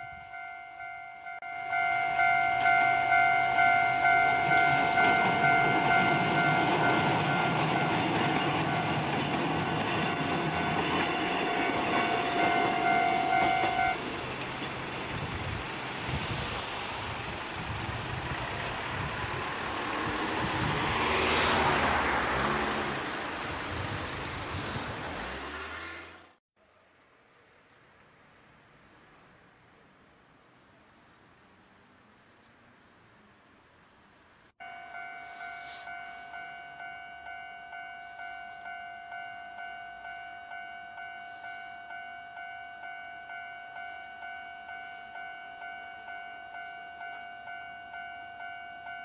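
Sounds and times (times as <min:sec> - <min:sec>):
level crossing bell ringing: 0:00.0 - 0:14.0, 0:34.6 - 0:49.0
train rumbling past: 0:00.0 - 0:26.9, 0:34.6 - 0:49.0
road traffic: 0:00.0 - 0:49.0
vehicle passing loudly: 0:18.3 - 0:26.4.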